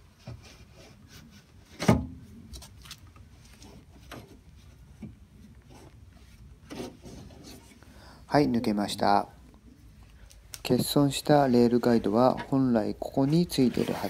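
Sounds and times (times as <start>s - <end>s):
window glass scraping in channels: 13.2s - 14.0s.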